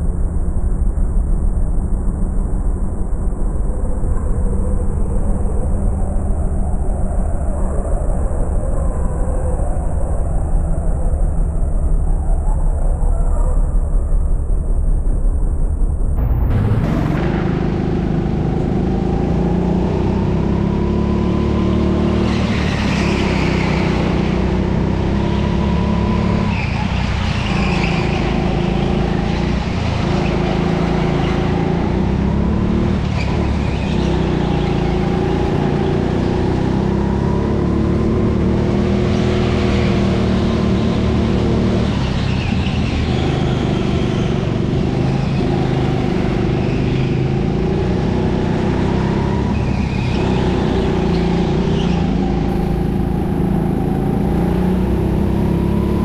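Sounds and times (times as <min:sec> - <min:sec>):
tyre squeal: 0:22.1 - 0:24.4, 0:25.2 - 0:31.7, 0:49.0 - 0:56.0
kart motor revving: 0:52.5 - 0:56.0.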